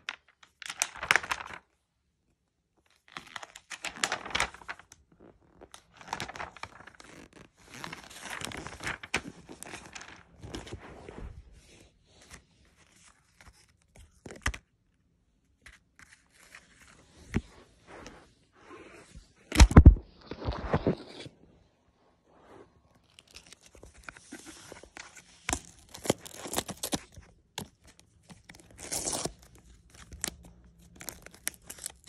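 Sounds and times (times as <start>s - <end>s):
paper pages rustling and crinkling: 0.0s - 1.8s, 2.9s - 14.7s, 15.4s - 21.7s, 22.4s - 32.0s.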